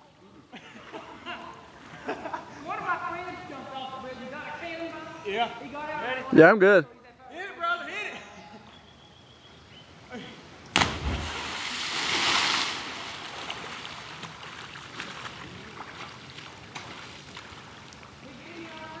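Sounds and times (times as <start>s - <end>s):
body smacking into water: 10.7s - 15.4s
splashing hiss: 10.8s - 13.9s.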